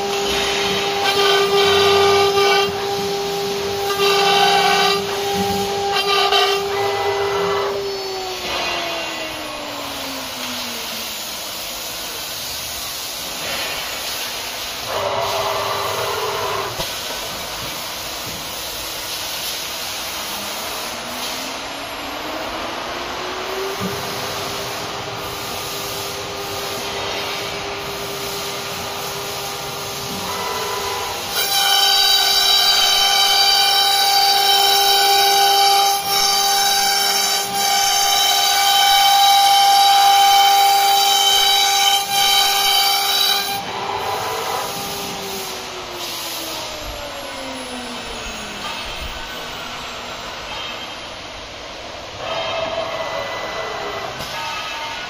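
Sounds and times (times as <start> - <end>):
router spindles whining: 0.0 - 11.6, 20.4 - 25.2, 30.2 - 50.9.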